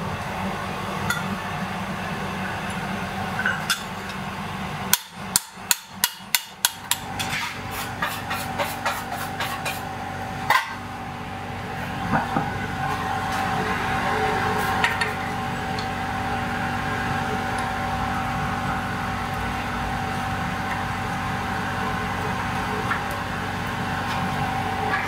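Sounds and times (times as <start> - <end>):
steady hum: 0.0 - 25.0
hammer striking steel on anvil: 4.9 - 7.3.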